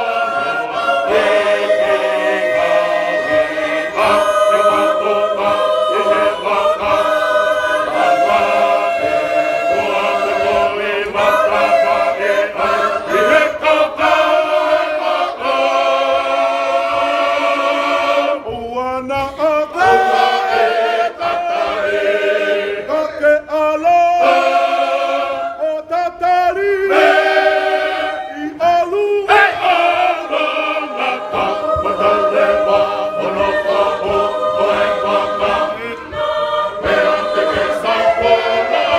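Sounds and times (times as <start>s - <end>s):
church choir singing a hymn: 0.0s - 38.9s.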